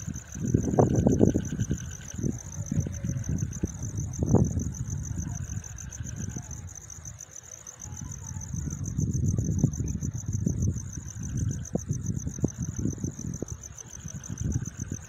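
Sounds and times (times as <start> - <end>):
night insects trilling: 0.0 - 15.0.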